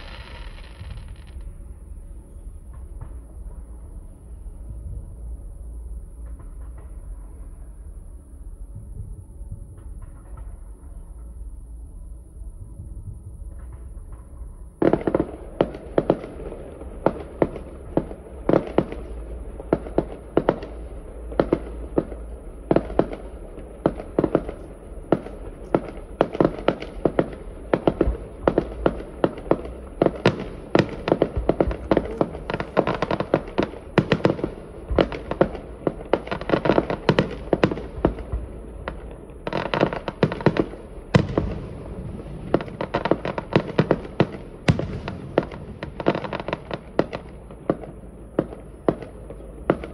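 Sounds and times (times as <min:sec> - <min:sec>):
fireworks bangs and crackles: 0:00.0 - 0:49.9.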